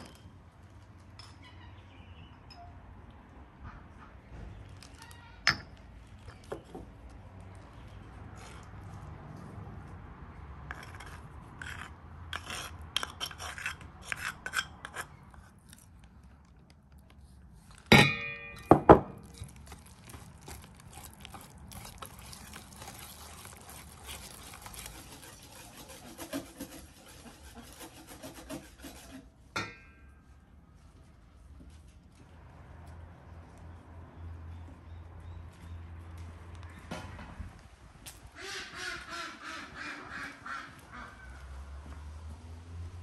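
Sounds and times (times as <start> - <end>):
spoon scraping clay bowl: 8.3 - 8.8, 10.7 - 15.9, 20.4 - 29.3
sharp ringing knocks: 17.9 - 19.2
whisk scraping thick paste: 20.5 - 29.3.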